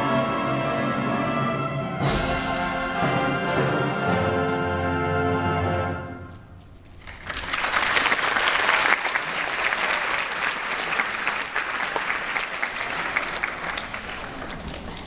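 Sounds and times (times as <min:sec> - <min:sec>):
orchestra chord: 0:00.0 - 0:06.3
audience applauding: 0:07.0 - 0:15.0.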